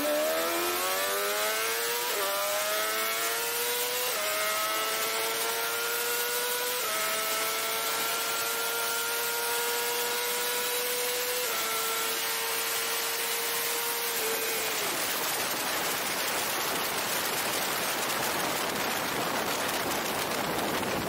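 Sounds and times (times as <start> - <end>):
motorcycle engine at high revs: 0.0 - 21.0
wind rushing on microphone: 14.9 - 21.0.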